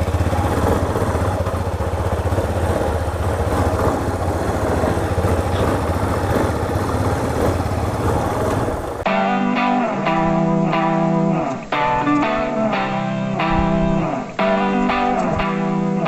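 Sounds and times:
motorcycle engine running: 0.0 - 9.1.

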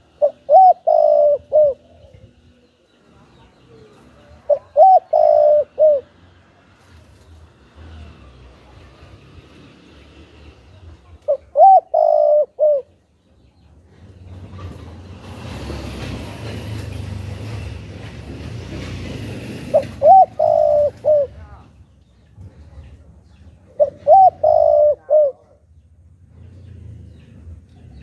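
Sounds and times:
dove cooing: 0.0 - 2.3, 4.4 - 6.2, 11.3 - 13.0, 19.7 - 21.4, 23.7 - 25.6.

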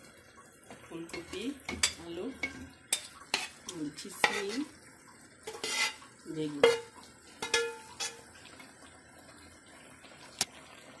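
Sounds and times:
spatula scraping metal pot: 1.2 - 4.7, 5.4 - 6.0, 6.6 - 8.3.

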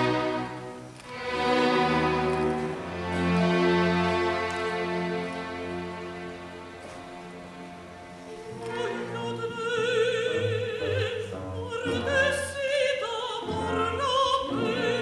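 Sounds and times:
woman singing operatically: 8.7 - 15.0.

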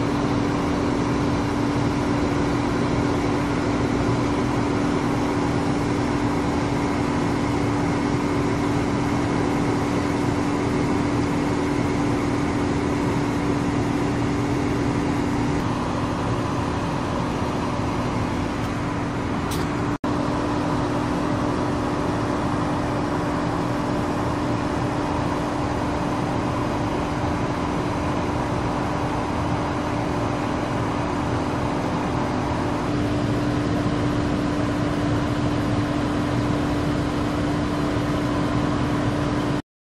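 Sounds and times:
vehicle engine and road noise: 0.0 - 39.6.

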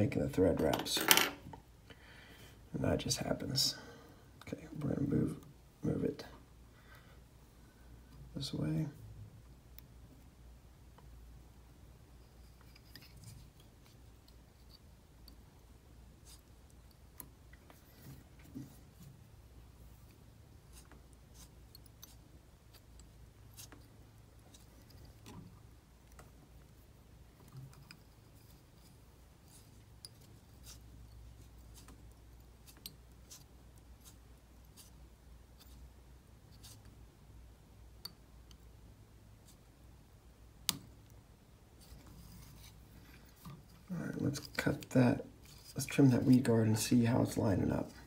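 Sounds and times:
low room hum: 0.0 - 48.0
thread ticks and rustles: 12.1 - 37.1.

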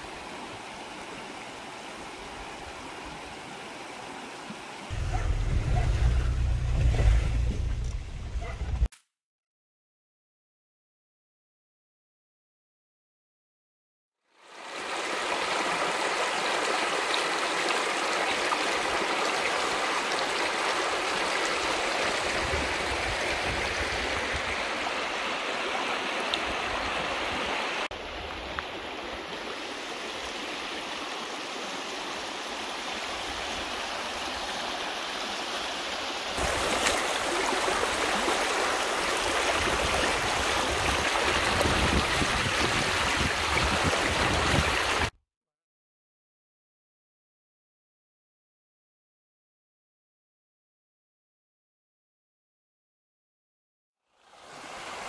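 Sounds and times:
flood water rushing over stones: 14.4 - 45.1.

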